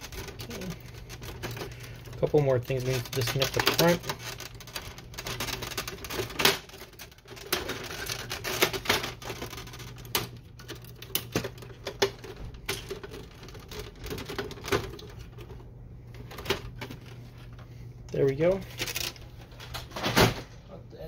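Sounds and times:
plastic clicks and rattles: 0.0 - 15.6.

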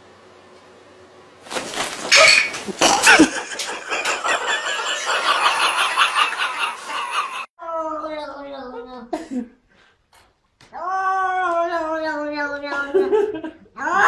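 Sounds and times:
pulsing laughter: 2.7 - 7.5.

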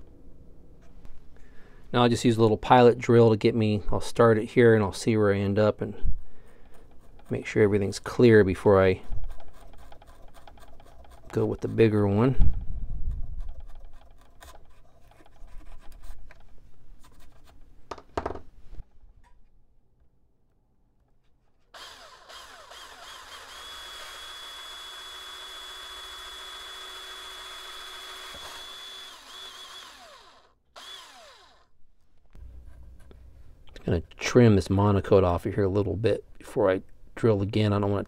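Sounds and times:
hand drill scratchy ticks: 9.2 - 11.7, 21.8 - 31.7
cordless drill whining: 21.7 - 31.7.

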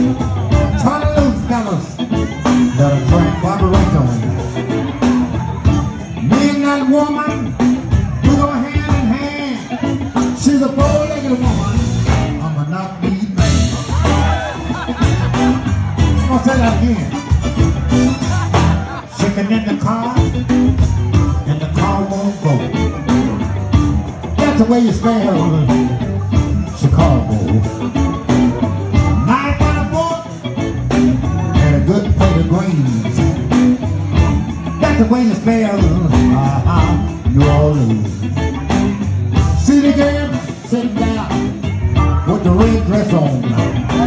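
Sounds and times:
man singing into microphone: 0.0 - 4.4, 6.2 - 7.5, 8.2 - 14.5, 19.0 - 20.4, 21.4 - 22.8, 24.4 - 26.0, 29.1 - 30.3, 31.4 - 33.6, 34.8 - 38.2, 39.5 - 44.0
blues band playing: 0.0 - 44.0.

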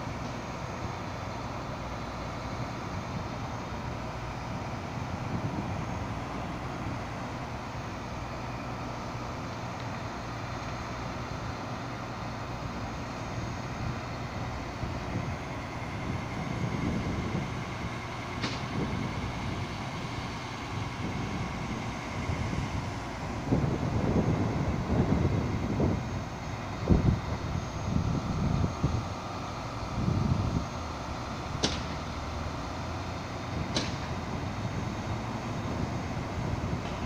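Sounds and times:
road traffic rumble: 0.0 - 37.0
sharp click: 31.6 - 32.0, 33.7 - 34.1.

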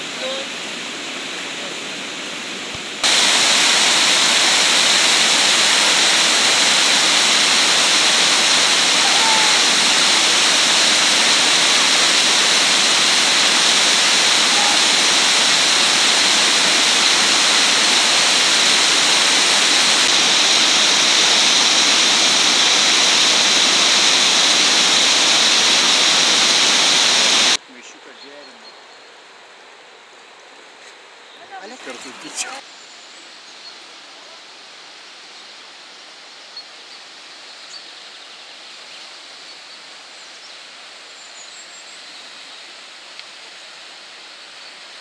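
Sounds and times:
river current: 0.0 - 28.1
water rushing over weir: 2.7 - 27.6.

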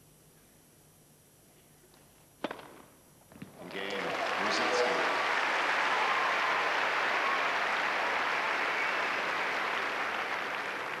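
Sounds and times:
crowd applauding: 3.6 - 11.0.

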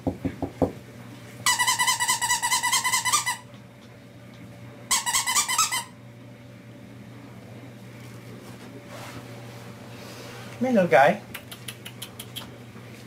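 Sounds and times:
squeaky toy squeaking: 1.5 - 3.5, 4.9 - 6.0.

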